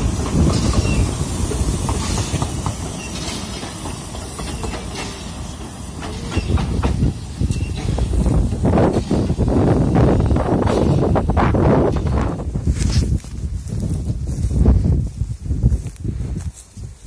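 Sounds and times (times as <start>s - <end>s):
train rumbling on rails: 0.0s - 16.4s
short high squeaks: 7.5s - 8.0s.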